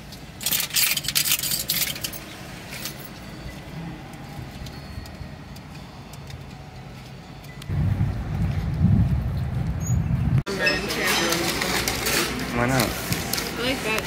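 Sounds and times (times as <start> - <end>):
loud low rumble: 7.7 - 10.4.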